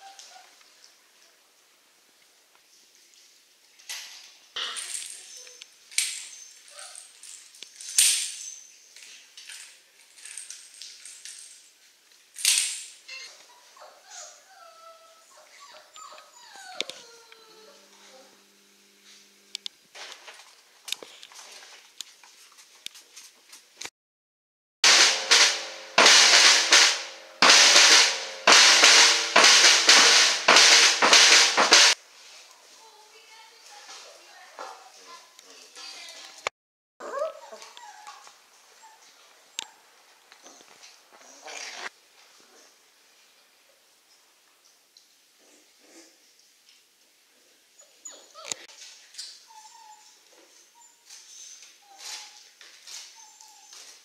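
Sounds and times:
plastic toy clattering on tile: 3.9s - 11.7s, 12.3s - 13.0s
drum kit hits: 24.8s - 32.0s.

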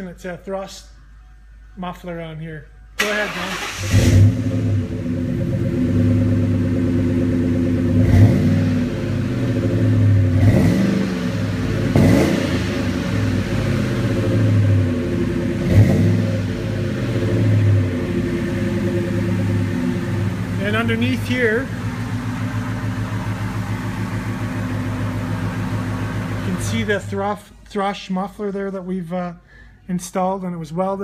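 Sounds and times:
engine revving: 3.0s - 27.2s
car engine idling: 3.0s - 27.6s.

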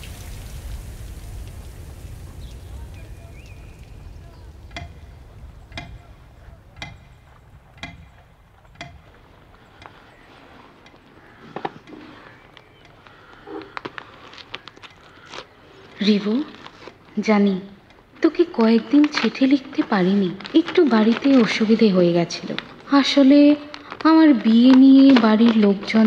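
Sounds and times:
hands rustling paper: 9.2s - 17.3s, 18.1s - 26.0s.

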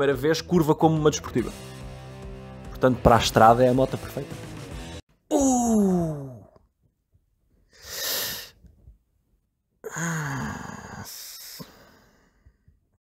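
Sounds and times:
man groaning and sighing: 5.3s - 6.6s, 9.8s - 12.0s
sharp breathy exhale: 7.7s - 8.6s, 9.9s - 12.7s.

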